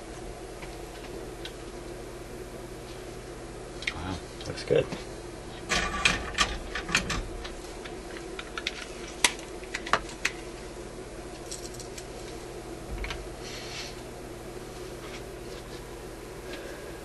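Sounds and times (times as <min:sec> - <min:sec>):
desoldering pump clicks and rattles: 0:05.6 - 0:10.4.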